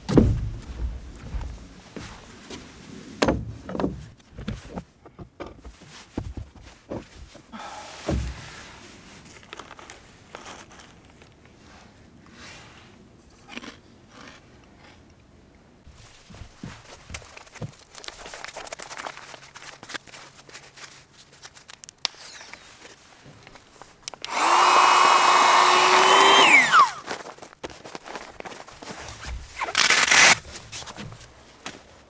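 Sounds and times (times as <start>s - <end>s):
thumps and knocks: 0.0s - 1.6s, 3.2s - 7.5s.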